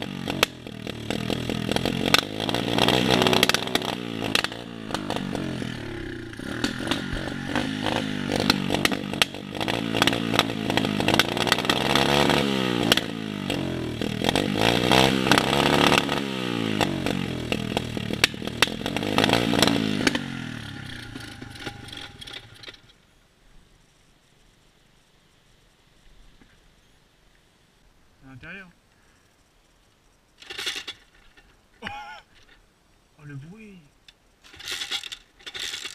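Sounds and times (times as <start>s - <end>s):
dirt bike engine revving: 0.0s - 22.9s.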